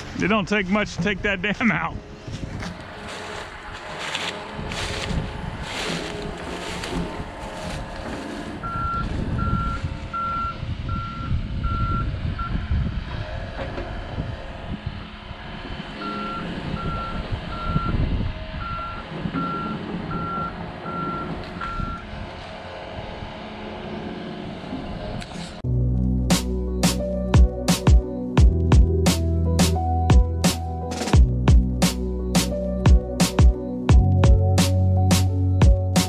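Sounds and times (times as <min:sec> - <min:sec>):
low rumble: 0:01.9 - 0:23.4
backup alarm beeping: 0:08.6 - 0:12.6, 0:16.0 - 0:18.0, 0:18.6 - 0:22.0.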